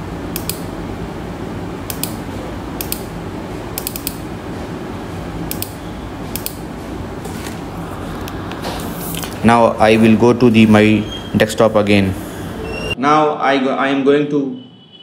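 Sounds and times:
steady low hum: 0:00.0 - 0:13.0
computer mouse clicks: 0:00.4 - 0:00.7, 0:01.9 - 0:02.2, 0:02.8 - 0:03.1, 0:03.8 - 0:04.2, 0:05.5 - 0:06.6.

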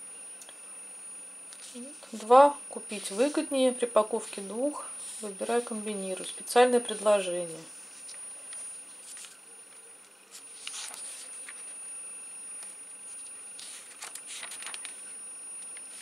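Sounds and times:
steady high-pitched whine: 0:00.0 - 0:16.0
paper pages rustling: 0:09.0 - 0:09.4, 0:10.3 - 0:11.8, 0:12.6 - 0:15.2.

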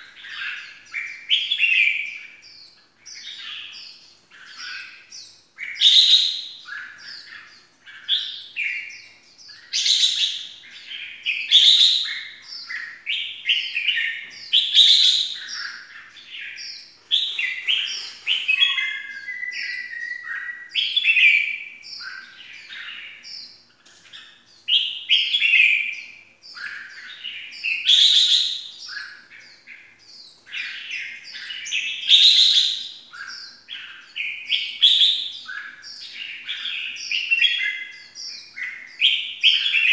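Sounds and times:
bird calling sharp phrases: 0:00.0 - 0:39.9
bird chirps: 0:00.0 - 0:39.9.

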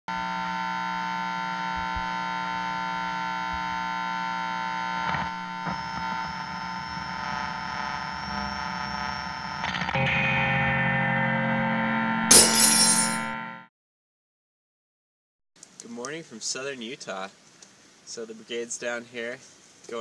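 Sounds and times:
thin high whine: 0:04.2 - 0:13.5
electronic drone: 0:04.2 - 0:13.6.

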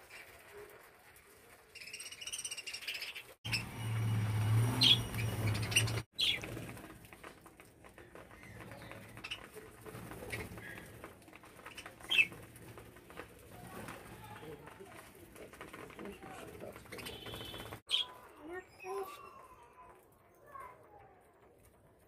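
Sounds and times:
budgerigars chirping and warbling: 0:01.8 - 0:03.7, 0:04.8 - 0:06.5.

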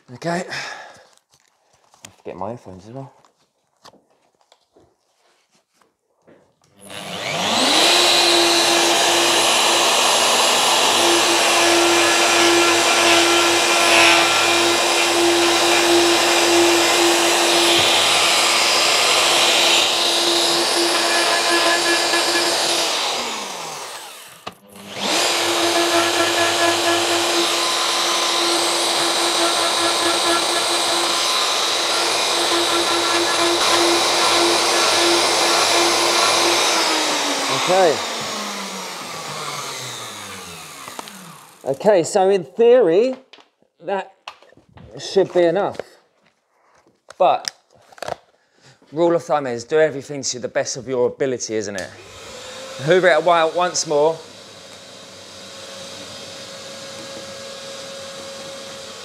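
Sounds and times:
router cutting wood: 0:06.8 - 0:42.0, 0:51.8 - 0:59.0.

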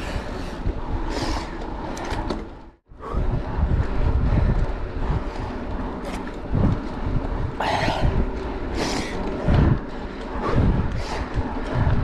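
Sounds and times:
bike rattling: 0:00.0 - 0:12.0
wind buffeting microphone: 0:00.0 - 0:12.0.

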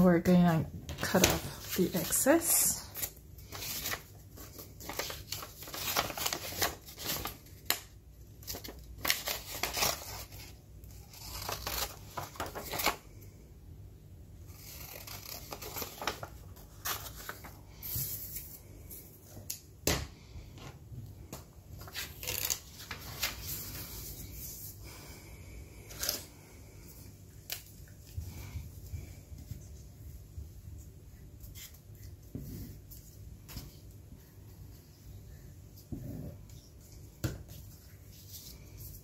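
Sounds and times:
paper rustling and creasing: 0:00.9 - 0:13.2, 0:14.5 - 0:19.6, 0:21.2 - 0:24.7
scissors snipping paper: 0:14.6 - 0:16.3.

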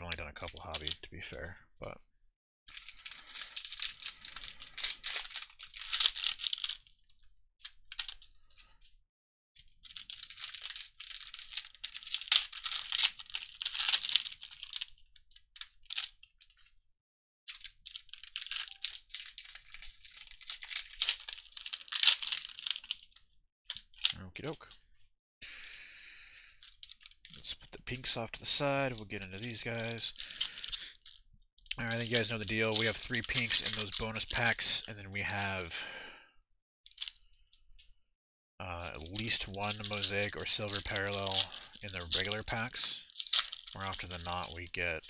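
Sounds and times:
foil wrappers crinkling and tearing: 0:02.7 - 0:07.2, 0:09.8 - 0:16.7, 0:17.5 - 0:24.2, 0:26.6 - 0:35.9, 0:38.6 - 0:45.0
small clicks: 0:17.5 - 0:24.8, 0:25.7 - 0:35.0, 0:36.9 - 0:37.9, 0:38.8 - 0:44.8.

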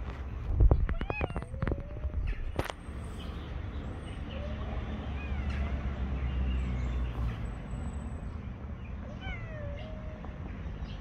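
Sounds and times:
cats yowling: 0:00.9 - 0:02.3, 0:04.3 - 0:06.0, 0:09.0 - 0:10.4.

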